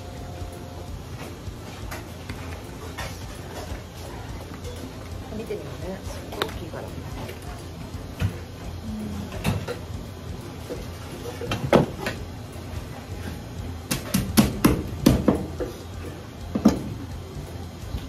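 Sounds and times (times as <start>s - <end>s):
low steady hum: 0.0s - 18.0s
sharp knocks and clatter: 13.9s - 15.7s.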